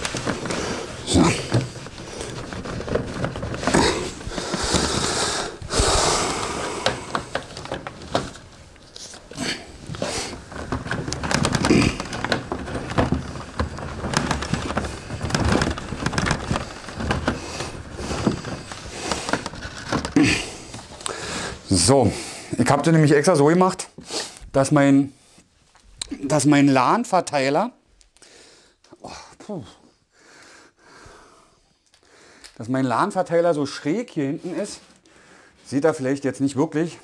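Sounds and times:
light clicks and knocks: 0:00.0 - 0:21.3
cables rustling: 0:00.0 - 0:26.7.

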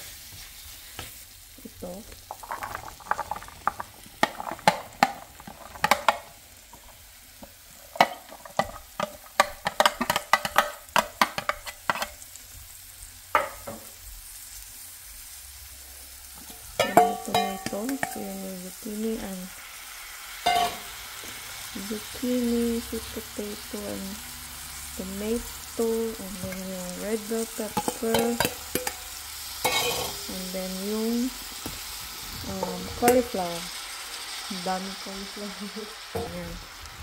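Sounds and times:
frying pan sizzle: 0:00.0 - 0:37.0
vegetable pieces clattering into pan: 0:02.1 - 0:12.3, 0:16.4 - 0:18.3, 0:20.4 - 0:21.3, 0:27.7 - 0:30.3.

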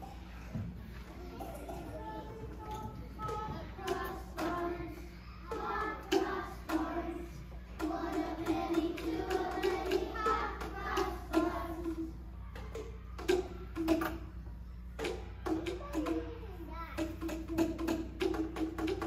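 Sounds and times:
children singing together: 0:01.4 - 0:14.1.

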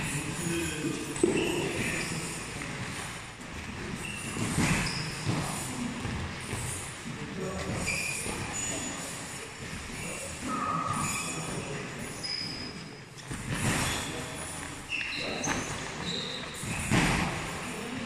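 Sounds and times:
shoes squeaking on canvas: 0:00.0 - 0:07.0, 0:07.6 - 0:09.4, 0:10.8 - 0:17.9.

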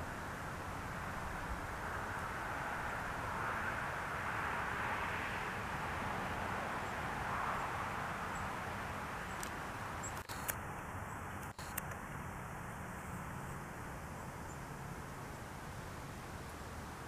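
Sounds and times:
outdoor background hiss: 0:00.0 - 0:17.0
faint clicks: 0:09.4 - 0:10.6, 0:11.4 - 0:12.0.

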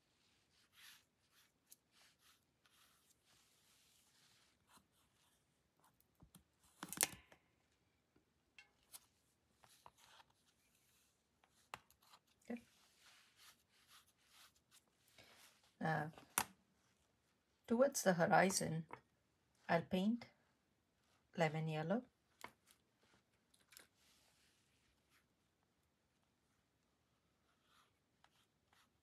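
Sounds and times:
wet brush swishing on paper: 0:00.0 - 0:05.5, 0:09.6 - 0:15.8.

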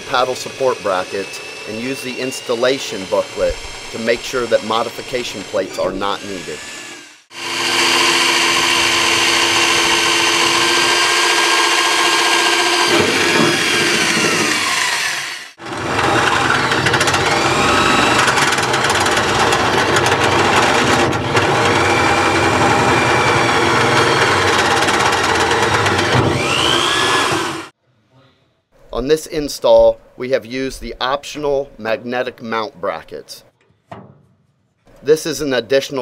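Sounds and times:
electric drill drilling into sheet metal: 0:00.0 - 0:27.7.

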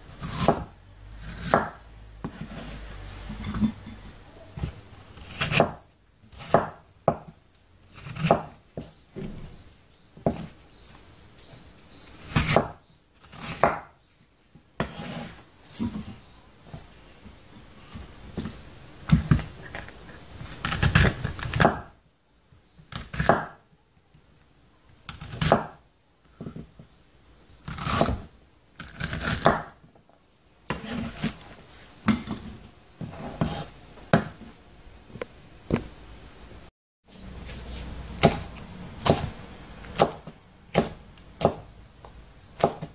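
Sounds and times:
knife chopping on wooden board: 0:00.2 - 0:00.7, 0:01.3 - 0:02.6, 0:05.3 - 0:05.8, 0:06.4 - 0:07.3, 0:08.2 - 0:09.3, 0:10.2 - 0:10.5, 0:12.3 - 0:12.8, 0:13.4 - 0:13.9, 0:23.1 - 0:23.6, 0:25.4 - 0:25.8, 0:29.0 - 0:29.8, 0:30.7 - 0:31.3, 0:38.2 - 0:39.3, 0:39.9 - 0:41.7, 0:42.6 - 0:42.9.

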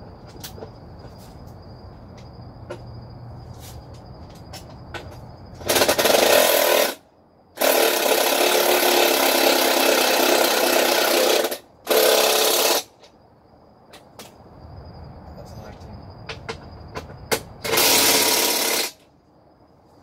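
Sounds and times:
power tool running: 0:17.6 - 0:19.0.

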